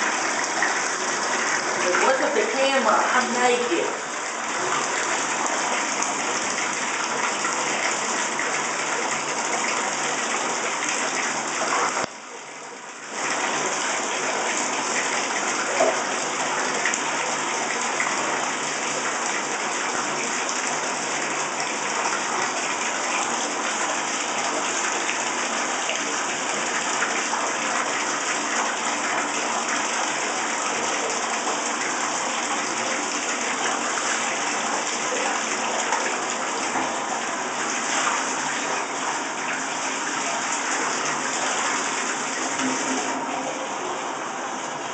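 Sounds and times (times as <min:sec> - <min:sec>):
water running into bathtub: 0:00.0 - 0:44.9.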